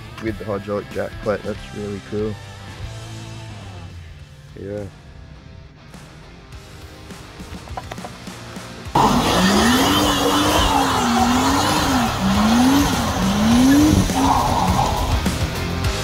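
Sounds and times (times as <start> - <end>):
truck engine revving: 8.9 - 16.0
tyres squealing: 9.0 - 15.4.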